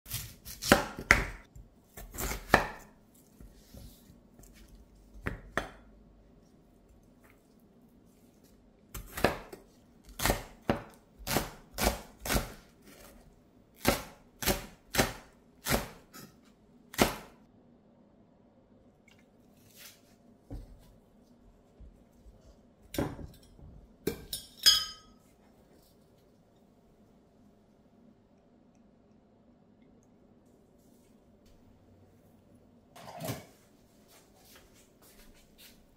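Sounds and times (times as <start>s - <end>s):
knife chopping on a wooden board: 0.1s - 2.9s
ceramic bowl clinking: 23.2s - 25.2s.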